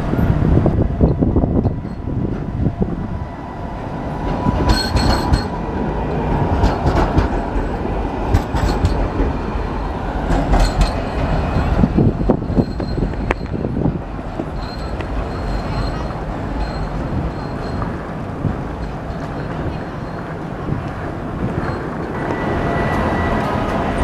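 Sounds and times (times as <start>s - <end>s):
tram rumbling past: 0.0s - 24.0s
high-pitched wheel squeals: 10.6s - 18.0s, 21.6s - 24.0s.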